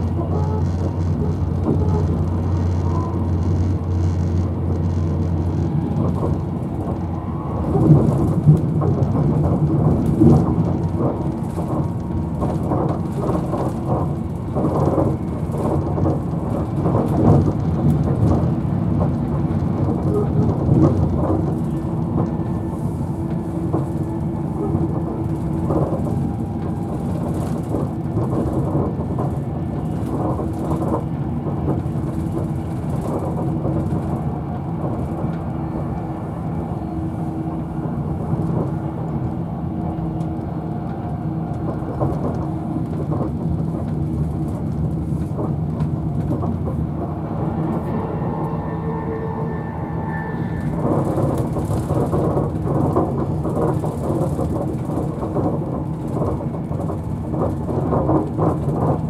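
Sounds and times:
train wheels rumbling on rail: 0:00.0 - 0:59.0
low hum: 0:46.8 - 0:51.6.

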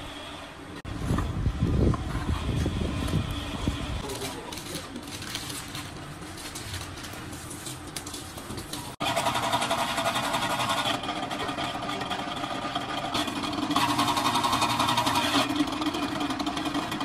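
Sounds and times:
wire-stripping machine rattling: 0:04.0 - 0:17.0.

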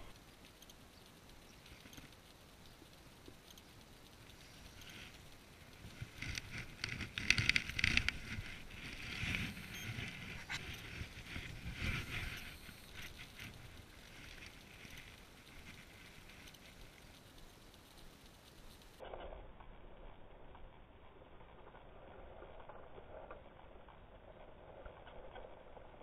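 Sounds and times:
fishing rod rustling: 0:03.8 - 0:17.6.

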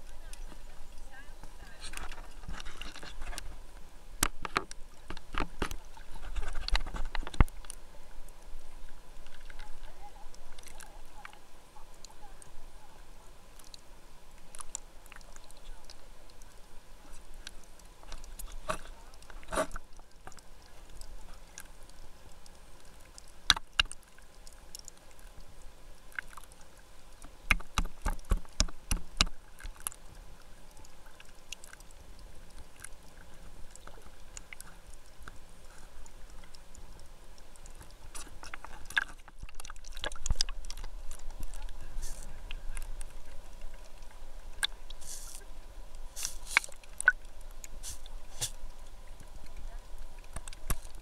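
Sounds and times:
muffled underwater rumble: 0:28.8 - 0:51.0.

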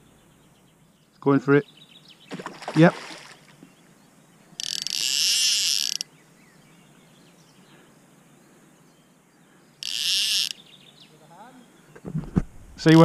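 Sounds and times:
fishing reel whirring: 0:04.6 - 0:06.1, 0:09.8 - 0:10.6.

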